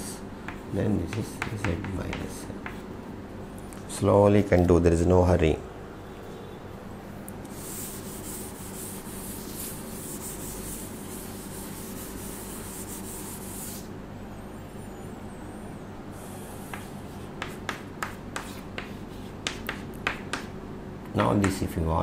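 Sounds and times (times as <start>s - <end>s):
chalk strokes and taps on board: 0.5s - 2.9s, 7.5s - 13.9s, 16.6s - 20.6s, 21.2s - 21.7s
duster rubbing chalkboard: 7.5s - 13.9s, 16.2s - 20.5s.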